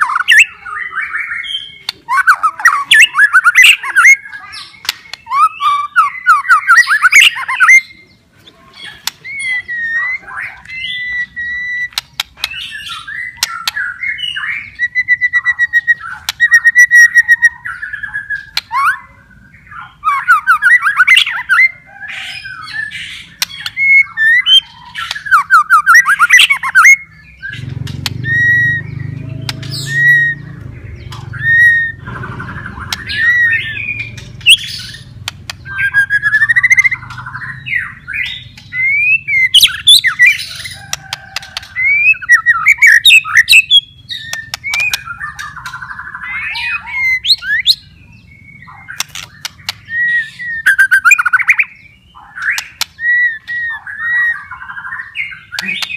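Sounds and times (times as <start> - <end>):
bird singing whistled phrases: 0.0 - 8.1, 8.8 - 21.7, 22.4 - 55.9
bird clicking chatter: 11.8 - 12.6, 31.1 - 37.4, 39.6 - 46.1, 48.9 - 49.9, 52.4 - 53.7.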